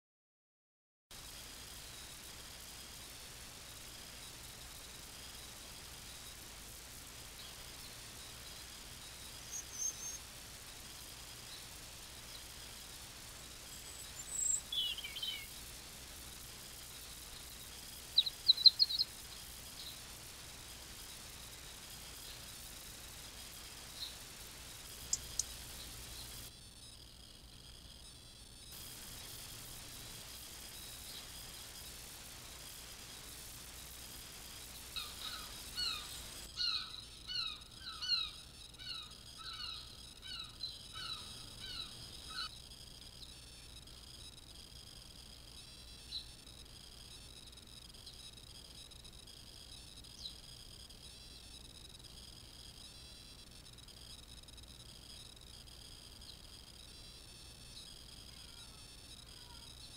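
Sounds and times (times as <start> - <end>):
songbird calling: 9.3 - 10.3, 13.7 - 15.6, 17.2 - 20.1, 23.8 - 26.5, 34.9 - 42.6
bird calling downward notes: 18.2 - 19.1.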